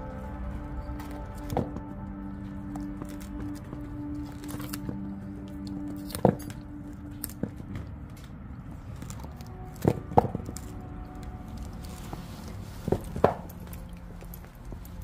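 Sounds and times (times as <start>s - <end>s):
dog gnawing bone: 2.7s - 12.0s.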